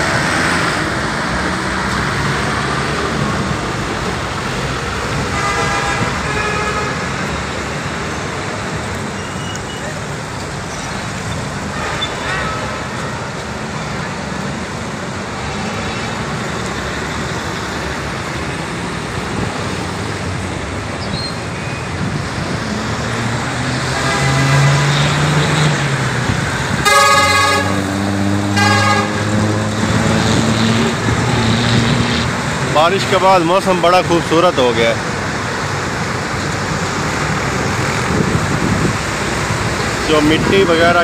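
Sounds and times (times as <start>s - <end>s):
tyres hissing on wet road: 0.0s - 41.0s
vehicle horn honking: 5.3s - 7.1s, 11.7s - 13.2s, 24.0s - 24.9s, 26.8s - 29.5s.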